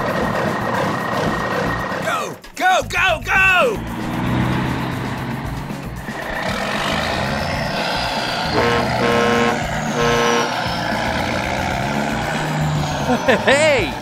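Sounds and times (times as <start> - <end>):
heavy truck engine running: 0.0 - 2.0, 3.7 - 14.0
reversing alarm beeping: 8.6 - 10.5.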